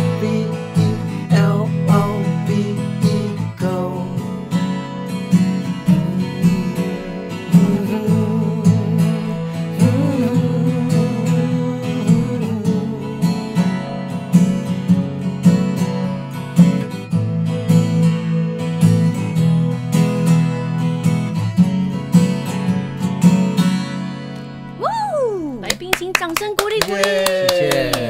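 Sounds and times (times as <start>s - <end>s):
acoustic guitar strumming: 0.0s - 28.0s.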